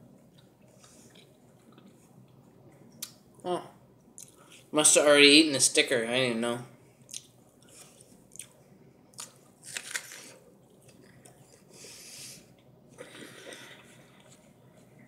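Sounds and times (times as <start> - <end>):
person chewing pear: 0.2 - 3.2, 4.2 - 4.7, 7.0 - 11.8.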